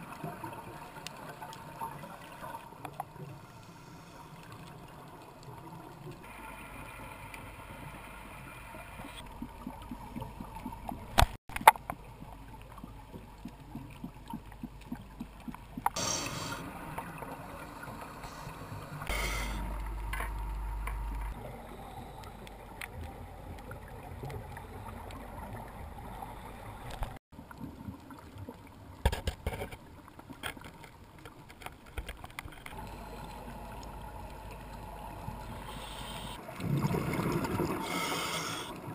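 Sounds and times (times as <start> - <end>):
underwater hum and water noise: 0.0 - 38.9
scuba exhaust bubbling: 32.7 - 38.9.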